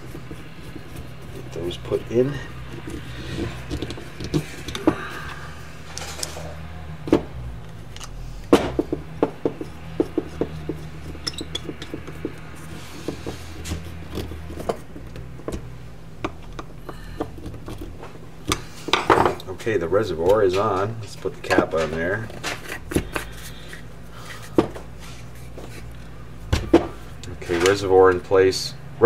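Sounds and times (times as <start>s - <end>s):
screwdriver turning screws: 0.0s - 5.4s, 9.6s - 18.7s
metal parts clicking and scraping: 0.0s - 8.9s, 9.5s - 26.1s
low hum: 0.0s - 21.5s.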